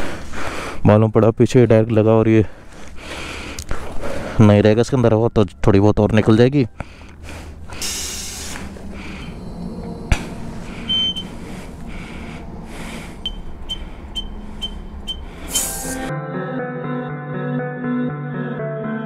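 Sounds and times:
steady low hum: 6.7 - 16.1
soft breathy hisses: 7.5 - 9.4, 15.4 - 16.1
short high beeps: 10.9 - 11.3, 13.2 - 15.9.

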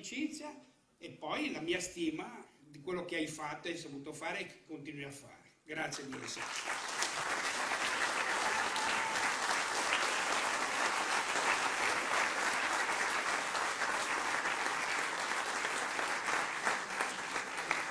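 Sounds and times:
audience applauding: 6.0 - 17.9.

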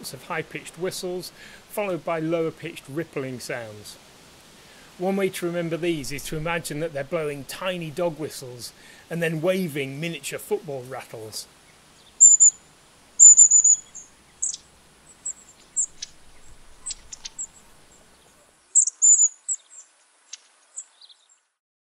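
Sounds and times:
sharp bird calls: 11.7 - 12.6, 13.2 - 21.4
high thin bird whistles: 13.2 - 14.6, 18.8 - 19.6.

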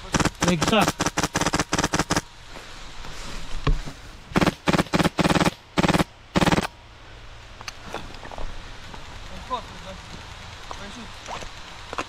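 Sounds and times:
airsoft rifle full-auto bursts: 0.0 - 2.3, 4.4 - 6.8.

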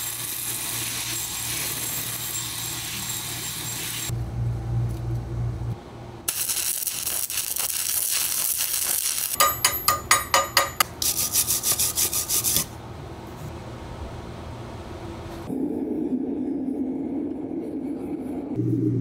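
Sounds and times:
belt grinder on steel: 0.0 - 4.1
rapid rasping strokes on metal: 8.8 - 12.7.

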